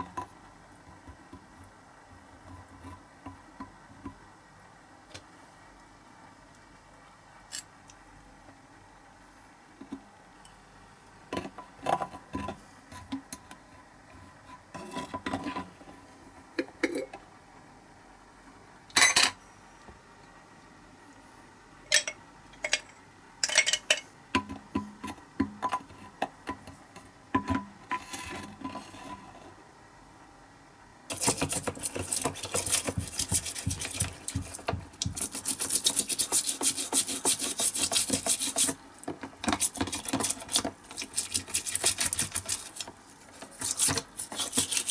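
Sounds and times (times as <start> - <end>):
toothbrush scrubbing metal part: 31.1 - 38.8, 39.4 - 44.9.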